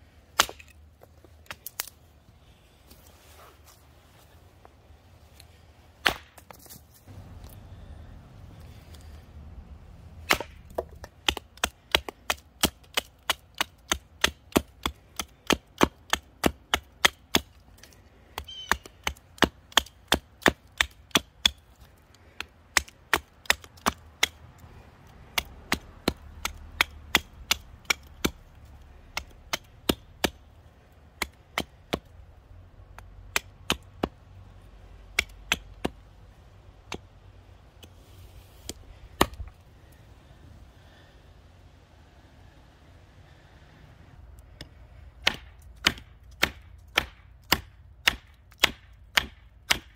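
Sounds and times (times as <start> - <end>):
hatchet chopping wood: 0.3 - 0.8, 6.0 - 6.6, 10.2 - 32.2, 32.9 - 34.3, 35.0 - 36.1, 36.8 - 37.1, 38.6 - 39.6, 44.5 - 49.9.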